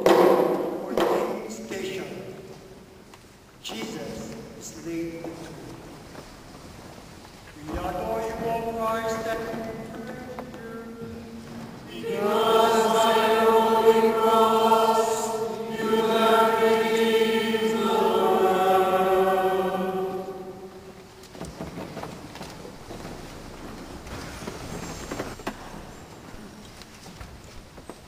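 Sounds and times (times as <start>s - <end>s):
voices singing a slow hymn: 7.6s - 21.2s.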